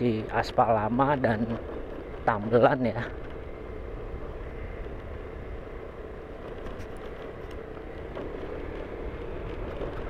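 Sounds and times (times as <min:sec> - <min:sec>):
vehicle engine hum and tyre noise: 0:00.0 - 0:10.0.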